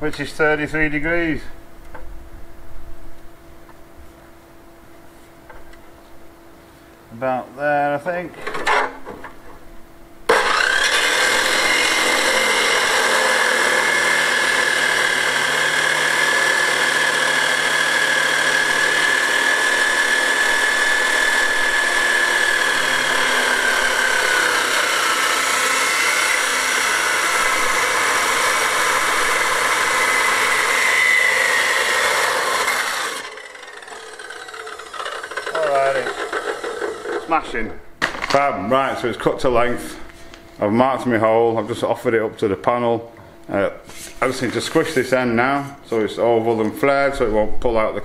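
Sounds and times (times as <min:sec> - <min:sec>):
chop saw cutting metal: 0:10.3 - 0:37.4.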